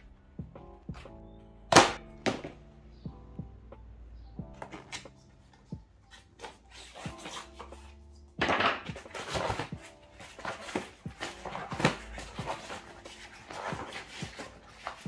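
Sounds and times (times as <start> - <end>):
lofi music with steady beat: 0.0 - 15.0
tyre rubbing and scraping on rim: 6.1 - 7.9, 8.9 - 15.0.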